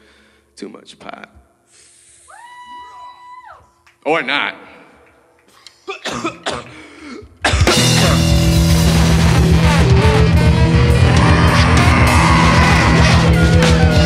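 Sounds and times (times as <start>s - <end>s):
live band playing heavy rock: 7.5s - 14.0s.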